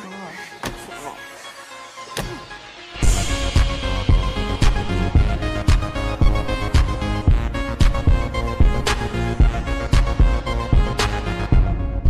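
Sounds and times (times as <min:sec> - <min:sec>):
music with drum beat: 0:03.0 - 0:11.8.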